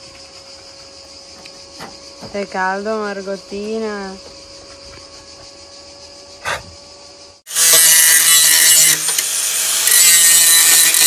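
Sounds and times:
loud even power tool noise: 7.4 - 11.0.

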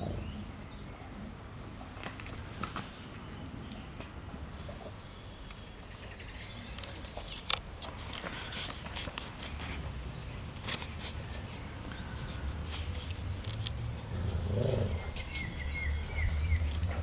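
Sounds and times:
low growl-like sound: 14.1 - 15.1
bird chirping: 14.3 - 17.0.

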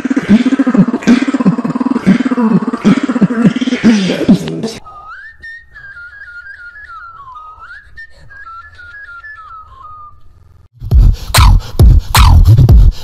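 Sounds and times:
beatboxing: 0.0 - 5.0, 10.8 - 13.0
person whistling tune: 4.8 - 10.2.

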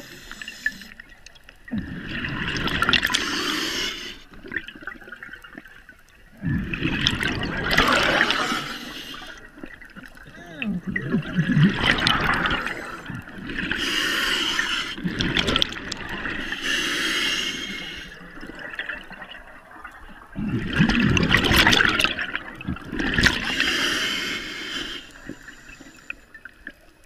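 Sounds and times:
regulator hissing inhalations: 0.0 - 1.0, 3.1 - 4.2, 8.2 - 9.4, 13.7 - 15.0, 16.4 - 18.2, 23.5 - 26.3
gurgling exhaled bubbles: 1.6 - 26.5.

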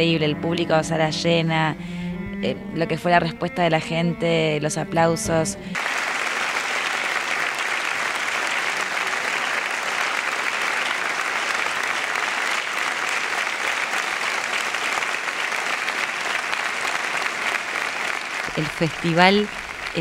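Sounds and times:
audience applauding: 5.8 - 20.0.

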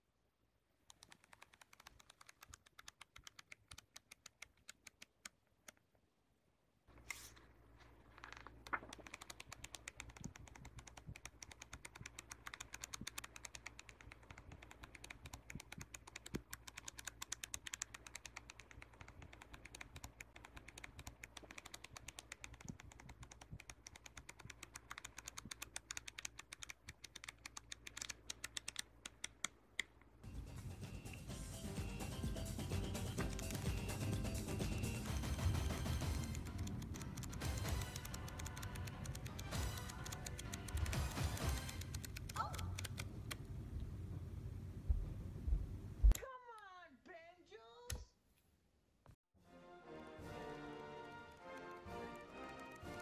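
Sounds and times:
flipbook pages flicking: 0.8 - 5.4, 6.9 - 29.5, 33.1 - 43.4.

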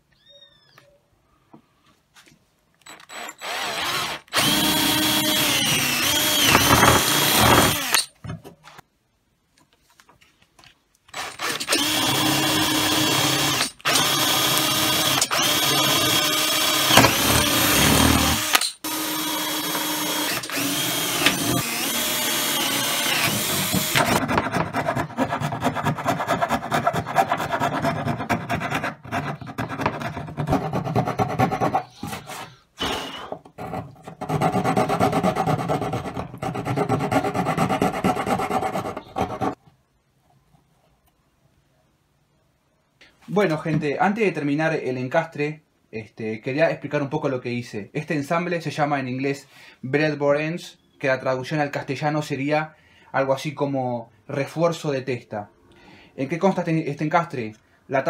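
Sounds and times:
electric drill boring into wood: 2.9 - 8.1, 11.1 - 24.2
rough hand scraping: 24.2 - 39.6.

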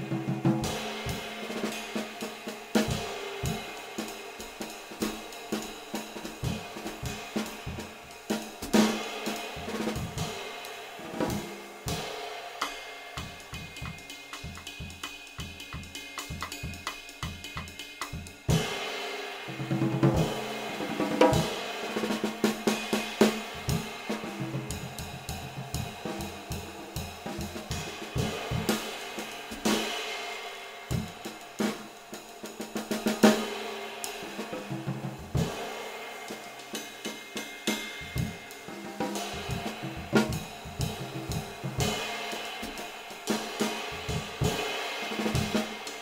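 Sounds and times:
ride cymbal pattern: 0.0 - 46.0
snare drum: 0.0 - 46.0
bass drum: 13.2 - 18.7, 19.7 - 28.9, 39.1 - 42.8.

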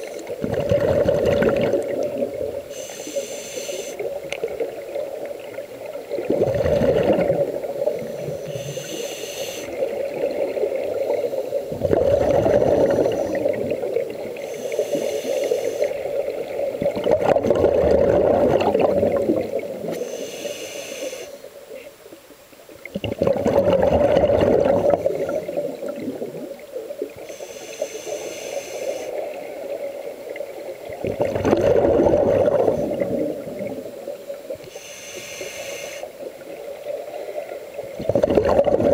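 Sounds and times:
regulator exhalation bubbling: 0.4 - 4.0, 6.2 - 9.8, 11.7 - 16.0, 16.8 - 21.2, 22.9 - 26.5, 31.0 - 33.9, 38.0 - 38.9
regulator inhalation hiss: 2.5 - 4.3, 7.6 - 10.0, 11.0 - 11.8, 12.6 - 16.6, 19.8 - 21.9, 27.1 - 29.4, 34.6 - 36.3.

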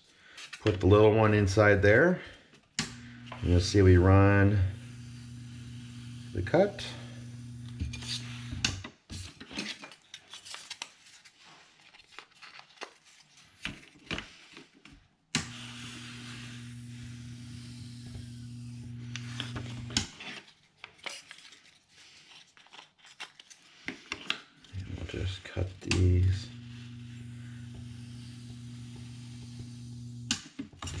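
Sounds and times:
hot-wire foam cutter humming: 2.8 - 8.8, 15.4 - 20.1, 24.8 - 31.0
foam blocks scraping on table: 3.3 - 8.7, 15.4 - 20.0.

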